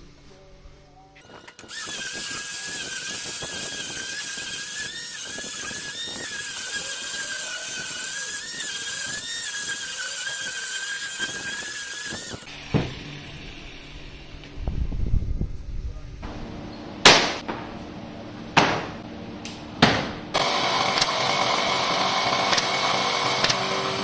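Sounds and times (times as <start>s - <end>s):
disc sander whining on wood: 1.2s - 12.6s, 20.4s - 24.0s
thump: 12.7s - 13.1s.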